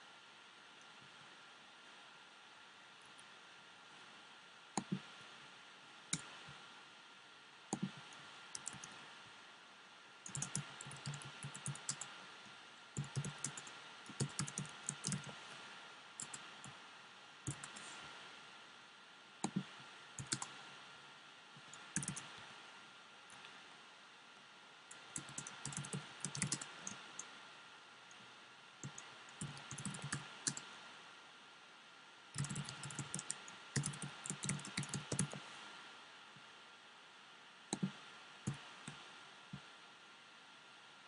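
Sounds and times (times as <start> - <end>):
faint steady hiss: 0.0 - 41.0
keyboard typing: 4.8 - 5.1, 7.7 - 9.0, 10.2 - 12.1, 13.0 - 15.4, 16.2 - 16.7, 17.4 - 17.8, 19.4 - 20.6, 21.6 - 22.4, 24.9 - 27.3, 28.8 - 30.7, 32.4 - 35.4, 37.7 - 39.0.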